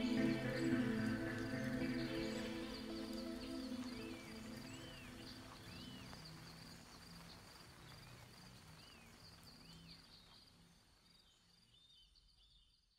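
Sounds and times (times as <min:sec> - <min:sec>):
insects chirring: 0:00.0 - 0:09.7.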